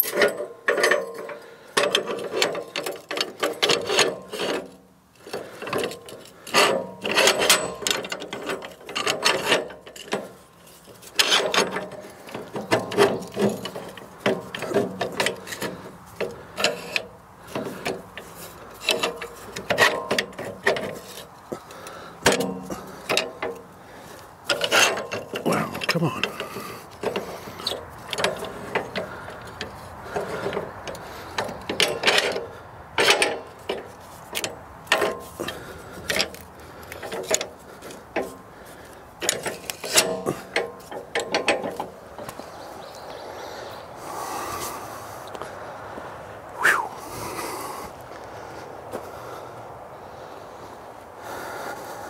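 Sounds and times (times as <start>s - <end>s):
metal clicking and ratcheting: 0.0s - 23.8s, 24.4s - 38.4s, 39.2s - 42.3s
wood scraping: 0.0s - 49.4s.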